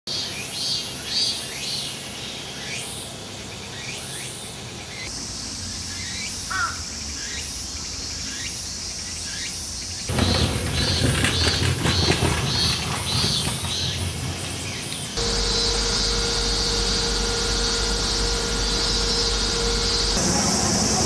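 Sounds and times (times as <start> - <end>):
cicadas calling: 0.1 - 21.0
brief lower insect call: 5.1 - 10.0, 14.7 - 21.0.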